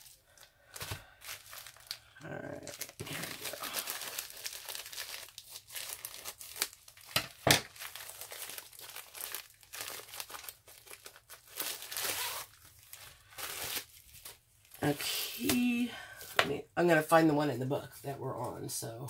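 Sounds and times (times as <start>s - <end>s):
plastic wrapping crinkling: 0.0s - 16.4s.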